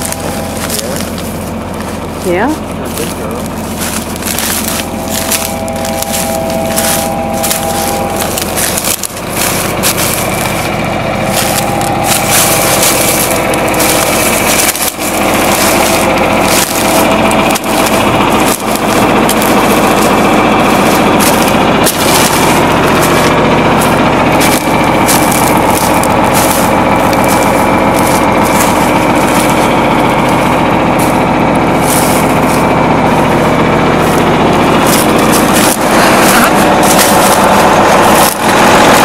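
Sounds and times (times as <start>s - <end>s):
footsteps in dry stubble: 0.0s - 39.0s
tractor engine running: 0.0s - 39.0s.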